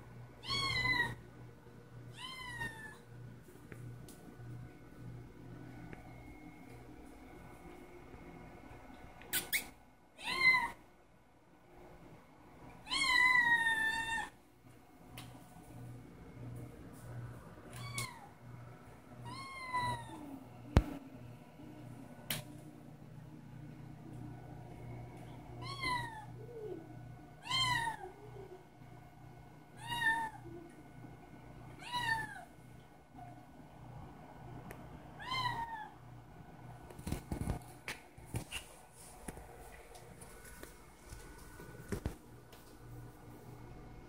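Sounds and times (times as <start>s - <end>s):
kitten meowing: 0.4s - 1.2s.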